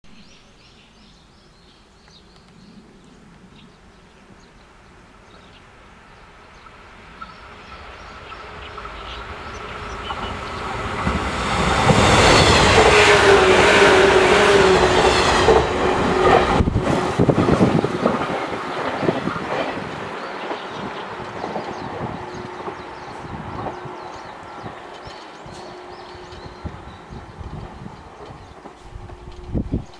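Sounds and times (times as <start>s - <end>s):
electric train whine passing: 4.1s - 29.9s
train wheels clacking over rail joints: 10.0s - 24.1s.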